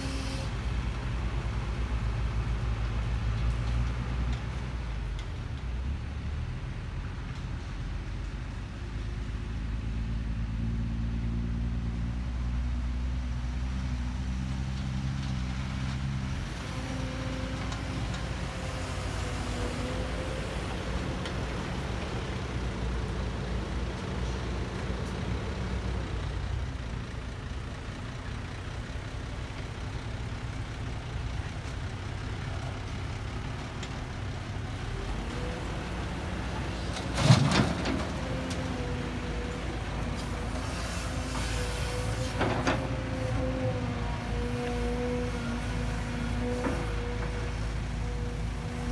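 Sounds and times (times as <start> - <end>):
excavator diesel engine under load: 14.2 - 48.9
dump truck engine running: 15.0 - 48.9.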